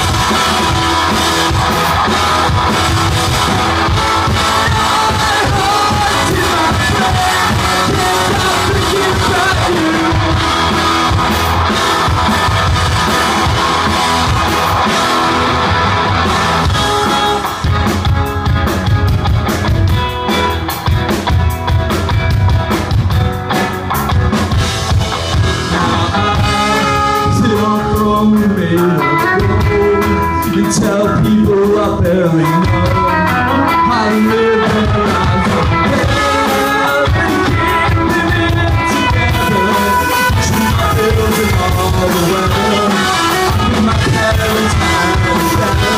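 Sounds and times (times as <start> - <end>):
person singing lead vocal: 0.0 - 12.7, 25.3 - 45.9
rock band playing live: 0.0 - 45.9.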